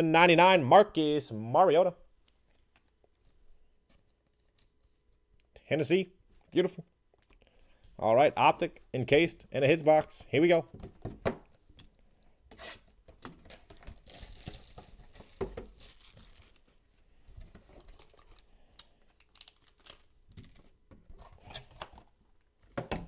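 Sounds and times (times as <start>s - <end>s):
cardboard and wrapper rustling: 13.4s - 18.5s, 19.1s - 22.2s.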